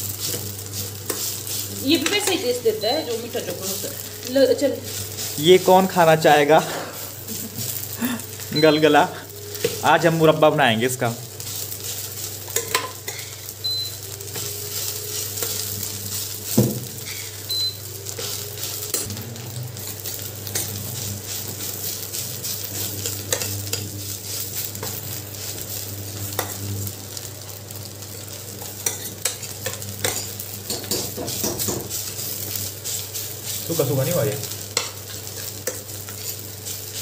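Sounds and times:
food sizzling in a pot: 0.0s - 37.0s
spoon stirring and scraping: 0.1s - 2.5s, 3.4s - 6.0s, 11.3s - 26.7s, 28.1s - 37.0s.

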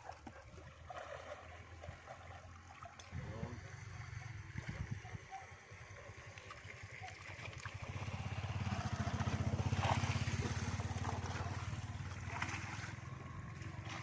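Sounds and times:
water splashes: 0.0s - 14.0s
small engine throbbing: 3.1s - 14.0s.

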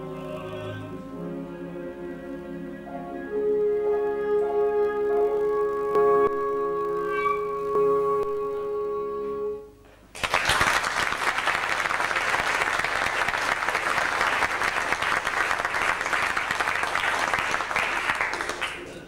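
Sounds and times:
held orchestral note: 0.0s - 9.8s
audience applauding: 10.2s - 19.0s.

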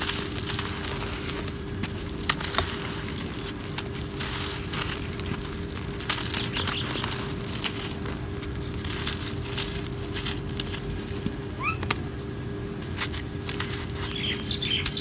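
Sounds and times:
cement lumps crumbling by hand: 0.0s - 12.0s.

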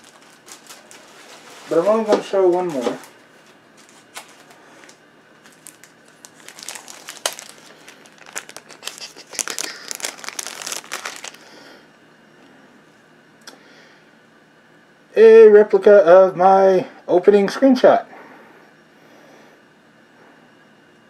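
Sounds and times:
packing paper crinkling: 0.0s - 11.5s.

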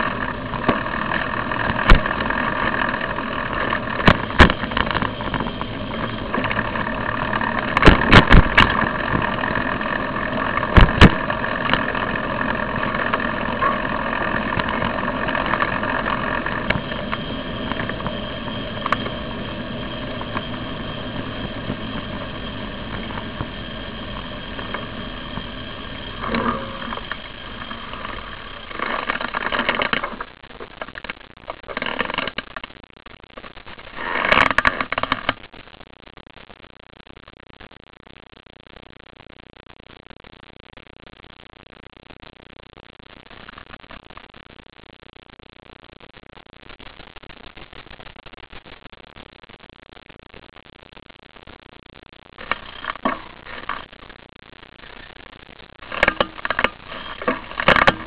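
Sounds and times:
bike knocking and rattling: 0.0s - 32.6s, 33.9s - 35.4s, 52.4s - 53.8s, 55.8s - 58.0s
bicycle rolling on road: 0.0s - 32.7s, 33.4s - 35.6s, 52.4s - 53.9s, 55.8s - 58.0s.

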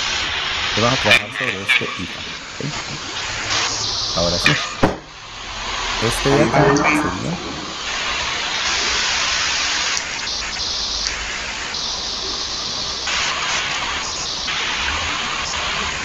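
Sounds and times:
steady background hiss: 0.0s - 8.6s.

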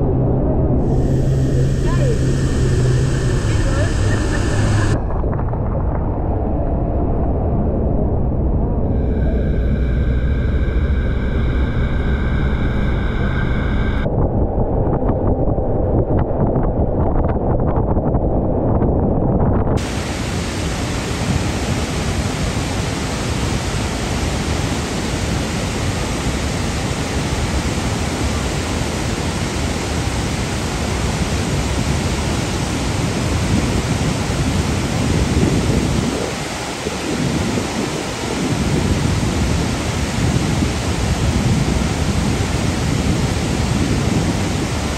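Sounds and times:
engine humming: 0.0s - 6.7s, 7.8s - 14.1s
waterfall roaring: 0.8s - 5.1s, 19.8s - 44.9s.

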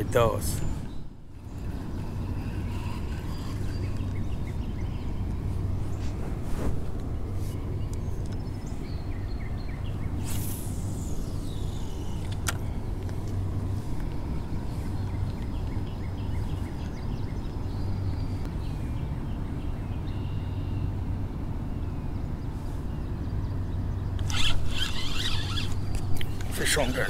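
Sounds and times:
steady low rumble: 0.0s - 24.8s
loud clicks and scraping: 24.2s - 26.5s.

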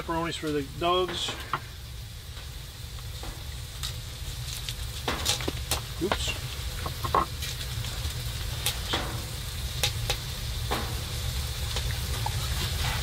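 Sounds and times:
steak sizzling: 0.0s - 13.0s
sharp fat pops: 3.1s - 7.8s, 8.5s - 12.2s.

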